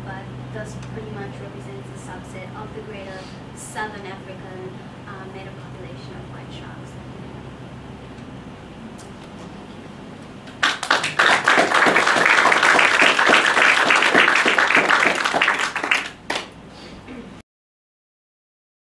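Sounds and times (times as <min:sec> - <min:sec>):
audience applauding: 0:10.5 - 0:16.6.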